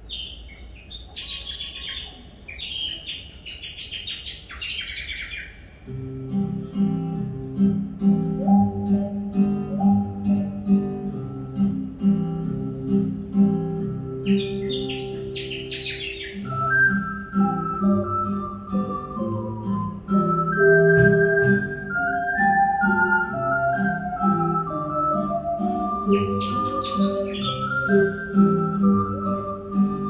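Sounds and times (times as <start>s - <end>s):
imitated birdsong chirps: 0.0s - 5.9s, 14.2s - 16.7s, 26.0s - 28.8s
acoustic guitar picking: 5.9s - 30.0s.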